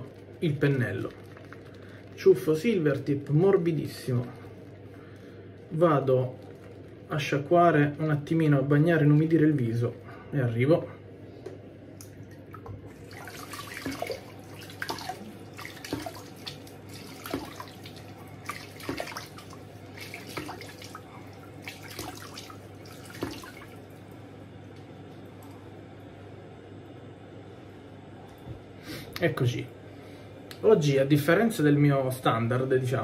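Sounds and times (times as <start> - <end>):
water splashing at a sink: 0.0 - 4.6, 12.0 - 24.2.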